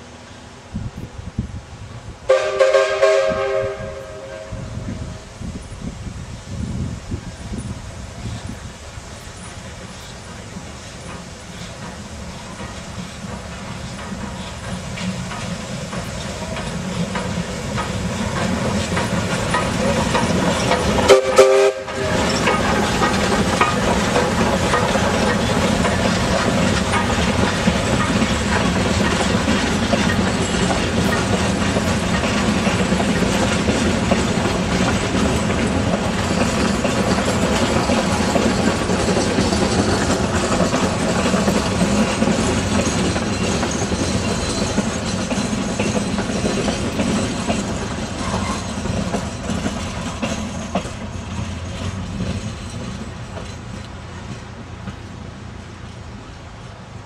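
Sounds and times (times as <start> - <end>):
steam train running on rails: 0.0 - 57.0
train whistle blast: 2.3 - 5.1, 21.0 - 22.4.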